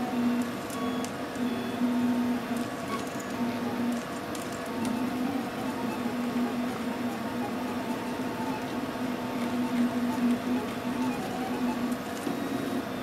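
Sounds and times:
stepper motors whining: 0.0 - 13.0
low motor tone: 4.6 - 13.0.

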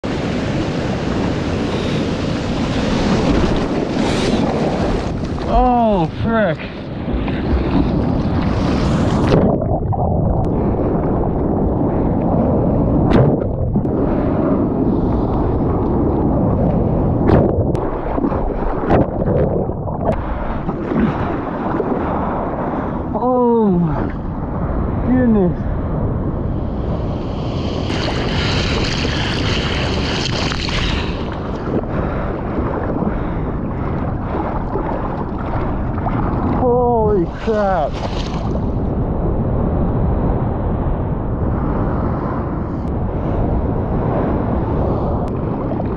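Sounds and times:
water splashing around bodyboard: 2.4 - 11.5, 27.8 - 32.0, 32.6 - 38.7
muffled underwater rumble: 2.9 - 45.9.

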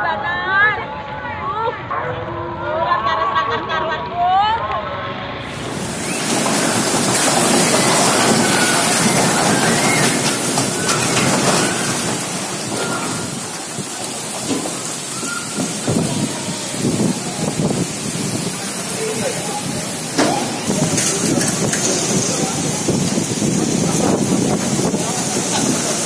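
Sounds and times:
storm wind: 5.3 - 26.0
heavy rain: 5.4 - 26.0.

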